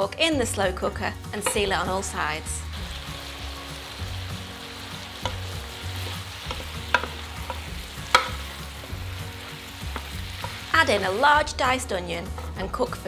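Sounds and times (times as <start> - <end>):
meat sizzling in a pot: 1.1 - 13.0
wooden spoon scraping a pot: 12.1 - 12.8.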